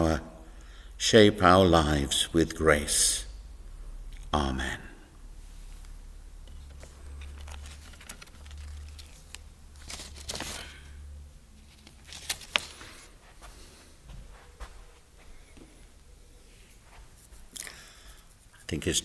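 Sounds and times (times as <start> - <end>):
low hum: 1.9 - 17.5
papers rustling: 6.5 - 11.0, 11.6 - 13.6.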